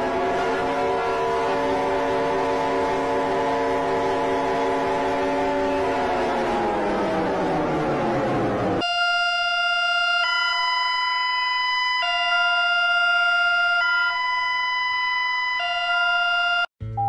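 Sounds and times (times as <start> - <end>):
harsh noisy alarm: 0.0 - 16.7
two-pitch electronic alarm: 8.8 - 16.7.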